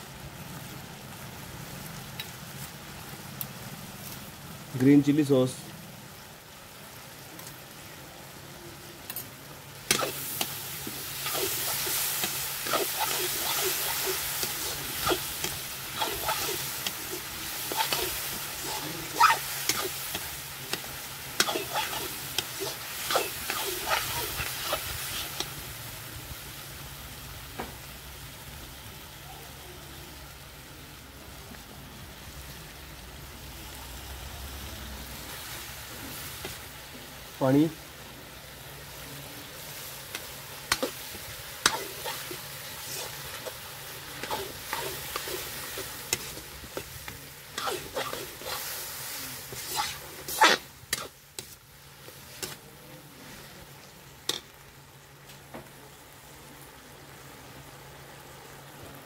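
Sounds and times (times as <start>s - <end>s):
vegetables sizzling in a pan: 0.0s - 59.0s
metal ladle scraping a pan: 9.9s - 25.5s, 40.7s - 51.6s.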